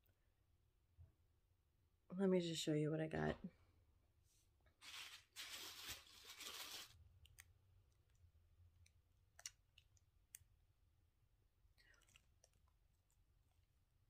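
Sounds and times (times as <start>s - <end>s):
plastic bag rustling and crinkling: 4.8s - 7.0s
faint clicks and crackles: 5.5s - 10.6s, 11.7s - 13.8s.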